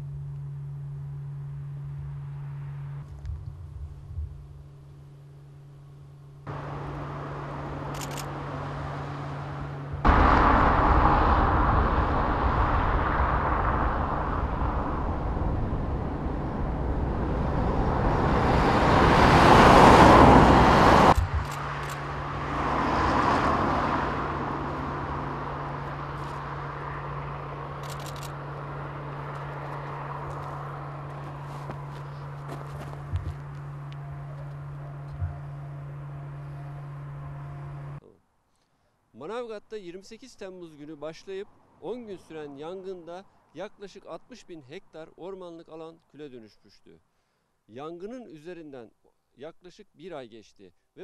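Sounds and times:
steady low hum: 0.0 - 18.9, 24.2 - 38.2
car passing: 6.4 - 38.0.

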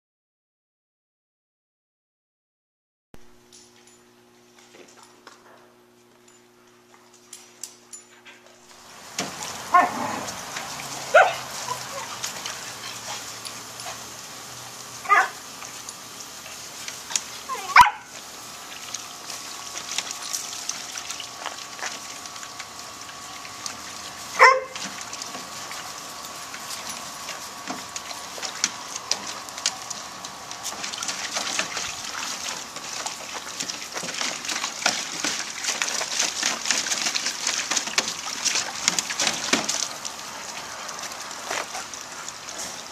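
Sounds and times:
puppies splashing in water: 8.6 - 42.9
water sloshing: 8.7 - 42.9
puppies yelping and barking: 9.5 - 14.2, 14.8 - 15.4, 24.4 - 25.0.

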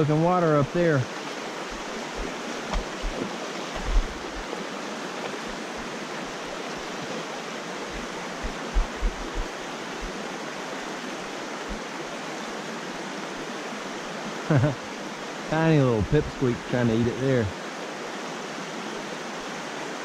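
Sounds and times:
creek rushing over rocks: 0.0 - 20.0
low thumps: 3.8 - 4.5, 8.0 - 9.6.

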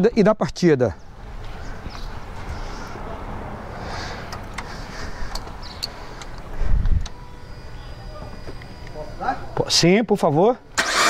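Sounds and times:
street noise: 0.0 - 11.0
wind on microphone: 6.6 - 7.1.

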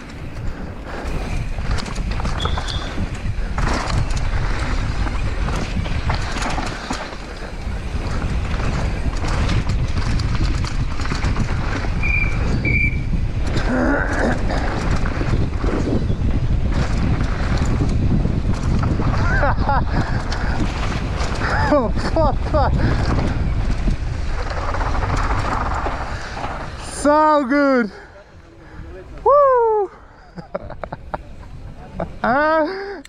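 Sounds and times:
wind buffeting microphone: 0.0 - 32.2
bike chain and frame rattling: 0.0 - 33.0
bike tyres on dirt: 0.0 - 33.0
short high squeaks: 2.3 - 3.1, 12.0 - 13.2.

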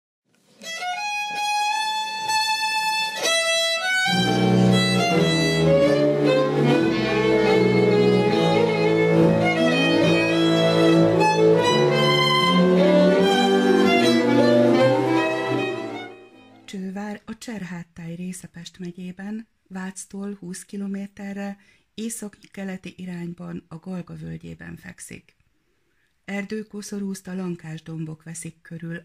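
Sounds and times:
fiddle melody: 0.4 - 16.7
strings bass line and chords: 1.0 - 16.6.

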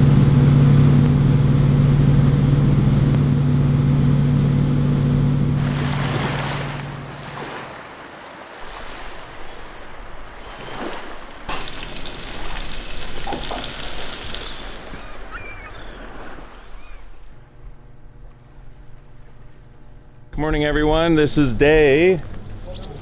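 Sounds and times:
sea waves washing: 4.3 - 17.4
steady hum with high whine: 17.3 - 22.9.

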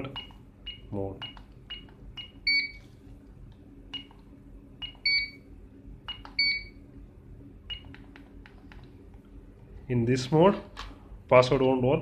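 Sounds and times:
keypad key-press beeps: 0.0 - 2.8, 3.9 - 4.2, 4.8 - 5.4, 6.0 - 6.8, 7.7 - 8.3
loud two-tone beeps: 0.1 - 2.8, 4.8 - 5.4, 6.1 - 6.8.

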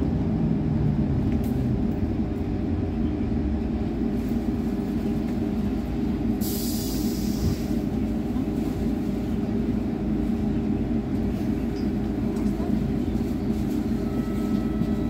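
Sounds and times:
vehicle interior hum and rumble: 0.0 - 6.4.

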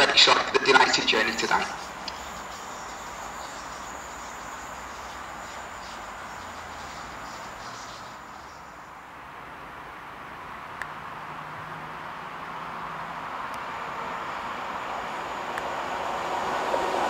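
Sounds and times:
train rail noise: 0.0 - 8.9, 13.9 - 17.0
insect chirring: 0.8 - 8.9.

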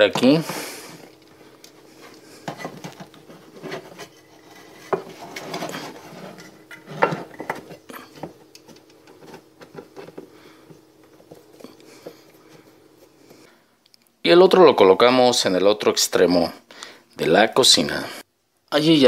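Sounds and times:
screw scraping and creaking into wood: 2.0 - 10.3.

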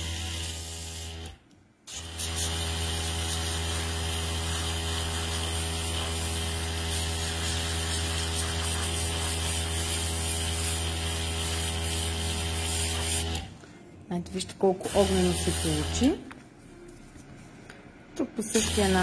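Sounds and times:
airbrush air hiss: 1.9 - 13.4, 18.6 - 19.0
air compressor humming: 14.9 - 16.2, 18.5 - 19.0.

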